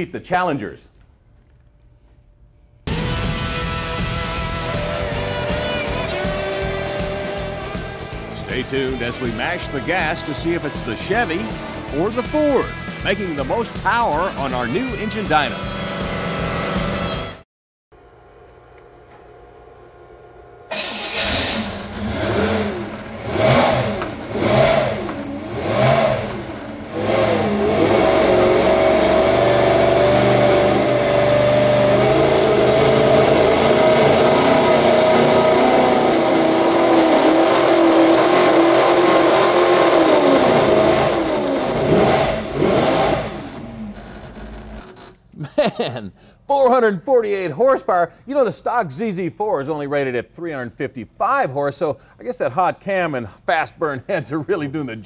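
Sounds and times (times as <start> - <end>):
engine revving on dynamometer: 2.9 - 13.2, 15.3 - 17.4, 20.7 - 45.0.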